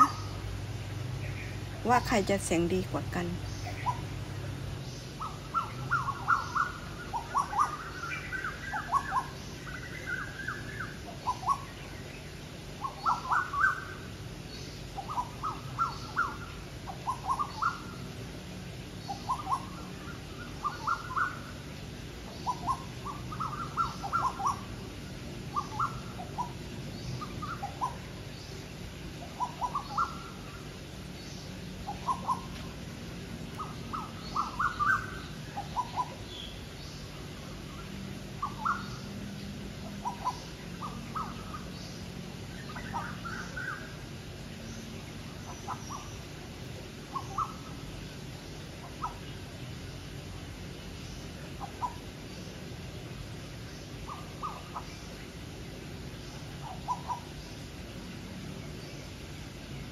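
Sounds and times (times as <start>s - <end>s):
koels calling: 0.0s - 0.5s, 1.2s - 11.8s, 12.8s - 14.2s, 15.0s - 18.2s, 19.1s - 21.7s, 22.3s - 28.3s, 29.2s - 30.8s, 31.8s - 32.8s, 33.5s - 36.4s, 39.8s - 41.7s, 42.6s - 44.1s, 45.3s - 47.9s, 48.8s - 49.5s, 54.0s - 55.1s, 56.5s - 57.4s
low steady hum: 0.0s - 59.9s.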